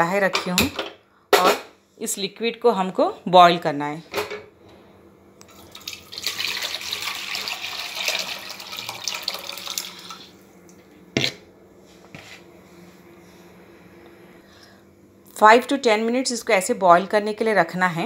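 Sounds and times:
liquid pouring and splashing: 5.5 - 10.3.

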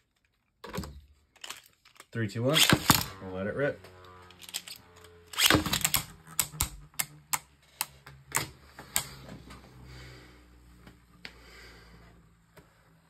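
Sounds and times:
plastic tops clacking: 4.4 - 9.1.

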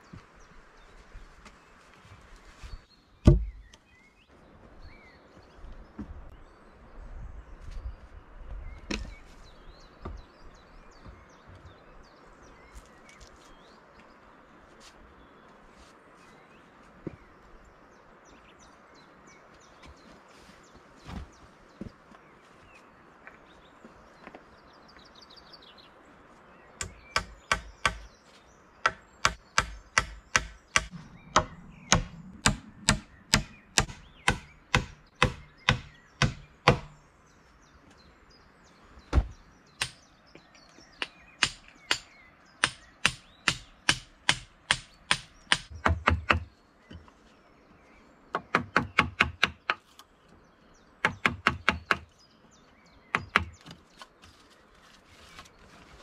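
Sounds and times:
hammer striking wood: 3.2 - 3.6, 26.8 - 28.1, 28.8 - 37.0, 39.1 - 40.0, 41.0 - 46.5, 48.4 - 49.8, 51.0 - 52.1.

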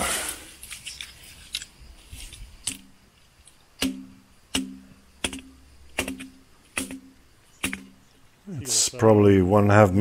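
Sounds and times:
stone tub struck ringing: 3.8 - 8.1.

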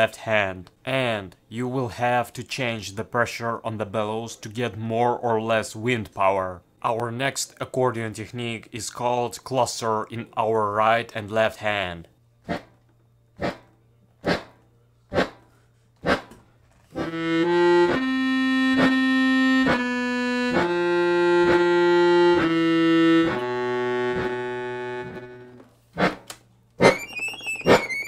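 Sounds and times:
accordion chords: 16.9 - 26.2
high treble accordion cluster: 16.9 - 26.2, 26.8 - 28.0
sharp knocks on accordion: 17.0 - 27.0.

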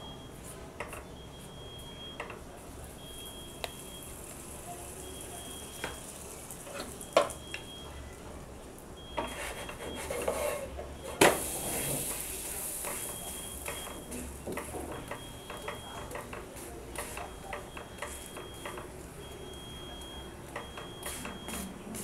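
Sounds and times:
spatula scraping pan: 9.2 - 10.8
bread sizzling in butter: 11.3 - 13.7.

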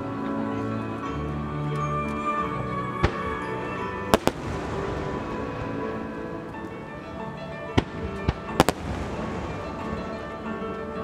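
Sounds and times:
music playing: 0.0 - 11.0
firework shells bursting: 4.1 - 5.9, 7.8 - 10.3.

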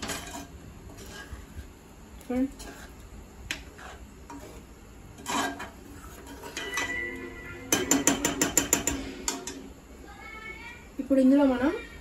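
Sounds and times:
metal spoon scraping a pot: 0.0 - 1.4, 2.5 - 9.6.

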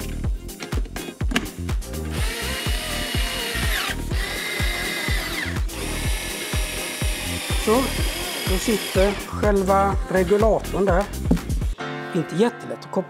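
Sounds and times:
background music with steady beat: 0.0 - 13.0
electric screwdriver motor whining: 2.1 - 9.3.

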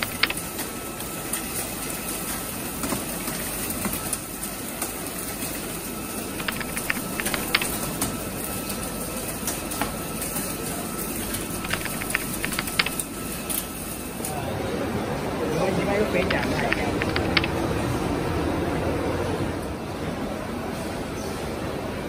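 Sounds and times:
sharp ticks: 0.0 - 0.4, 6.4 - 7.8, 11.3 - 13.0, 16.2 - 17.7.

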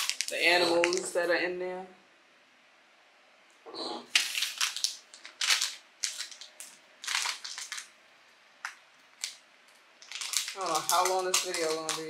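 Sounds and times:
plastic pouch crinkling and tearing: 0.0 - 1.1, 4.1 - 8.0, 8.6 - 12.0.

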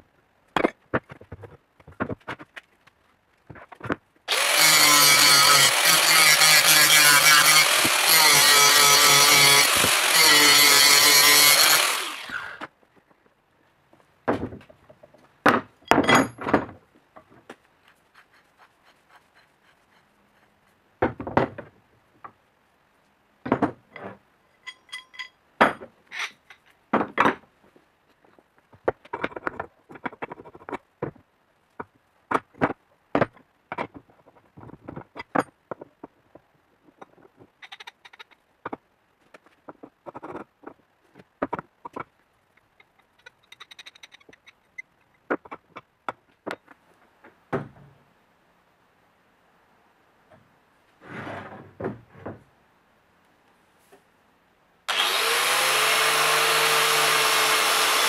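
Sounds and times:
angle grinder cutting metal: 4.3 - 12.6, 54.9 - 58.0
metallic knocks and clinks: 15.8 - 16.7, 23.9 - 26.6.

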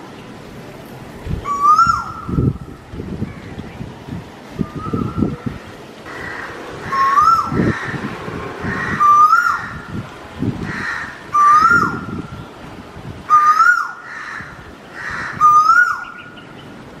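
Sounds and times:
whistled rising and falling call: 1.4 - 2.5, 4.6 - 5.4, 6.8 - 7.7, 8.7 - 9.8, 11.4 - 12.1.

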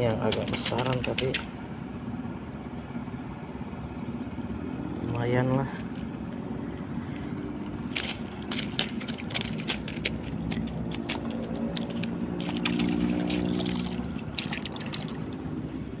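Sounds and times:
water splashing and dripping: 0.0 - 1.8, 7.8 - 15.5
engine hum: 0.0 - 16.0
sharp clicks: 0.3 - 1.6.

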